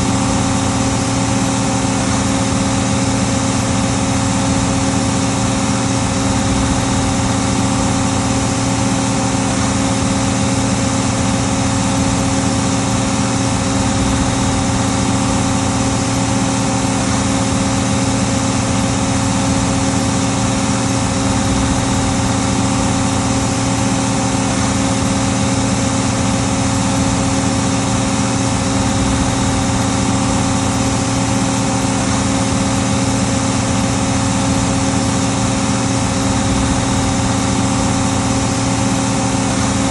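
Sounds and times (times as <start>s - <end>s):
tractor diesel engine droning: 0.0s - 39.9s.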